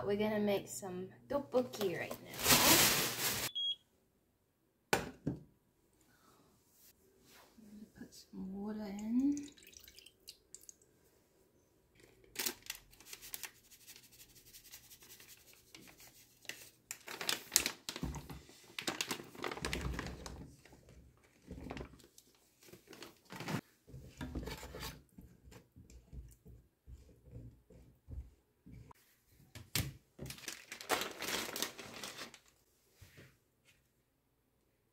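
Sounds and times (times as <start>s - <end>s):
plastic packaging crinkling and tearing: 2.2s - 3.5s, 12.3s - 13.6s, 16.4s - 20.3s, 30.2s - 32.6s.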